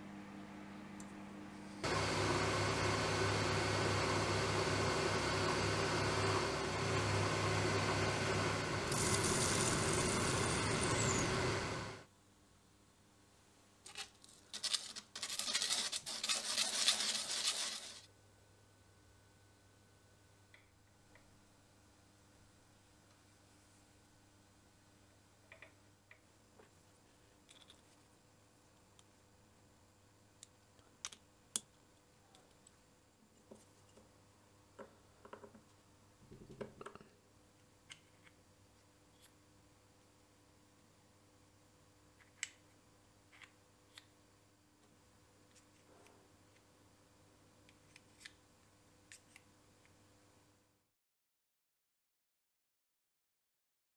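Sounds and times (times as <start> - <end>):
thin high whine: 1.6 - 12.1
metal lathe running: 1.8 - 12.0.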